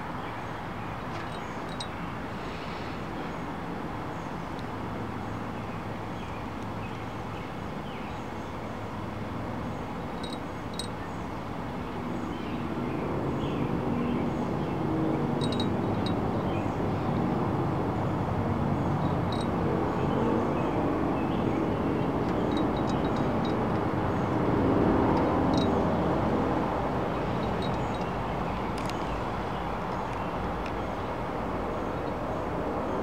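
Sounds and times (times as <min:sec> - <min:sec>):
outdoor background rumble: 0:00.8 - 0:33.0
faint high chirps: 0:15.4 - 0:16.2.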